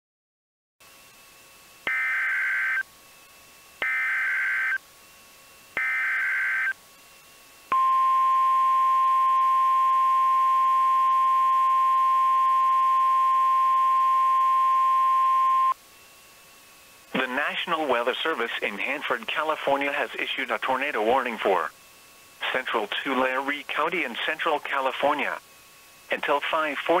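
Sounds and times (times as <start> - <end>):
high warning alarm tone: 1.9 - 2.8, 3.8 - 4.8, 5.8 - 6.8, 7.7 - 15.8
buzzy digital data bursts: 3.8 - 4.8.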